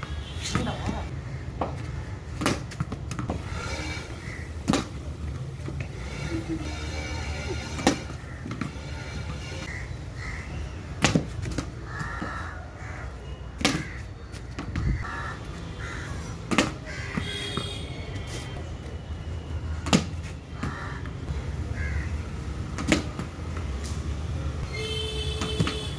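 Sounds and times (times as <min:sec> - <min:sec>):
crows cawing: 0:09.7 - 0:10.7, 0:11.8 - 0:13.2, 0:13.8 - 0:17.5, 0:20.6 - 0:22.2.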